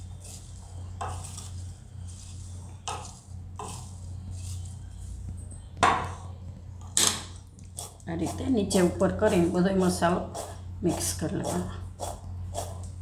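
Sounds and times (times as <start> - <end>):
spatula scraping glass bowl: 0.0 - 5.1.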